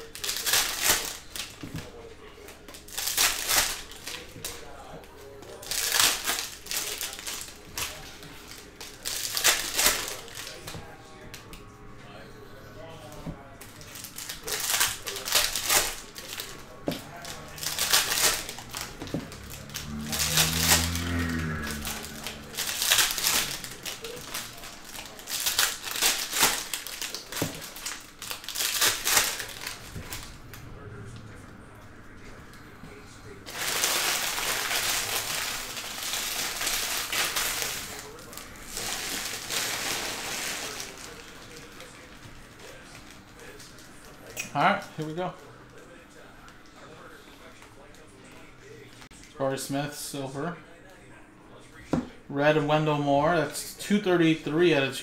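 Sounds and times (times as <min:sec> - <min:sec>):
foil wrapper crinkling and tearing: 0:00.0 - 0:11.4, 0:13.8 - 0:30.6, 0:33.4 - 0:44.2.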